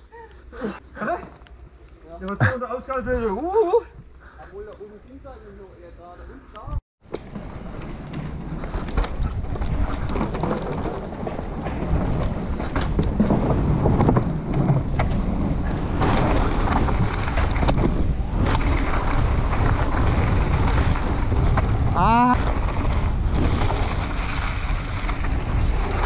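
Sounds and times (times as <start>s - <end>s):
tyres on dirt and wooden boards: 0.0s - 5.2s, 6.2s - 26.0s
bike clicks and rattles: 6.6s - 26.0s
wind rushing over microphone: 8.4s - 26.0s.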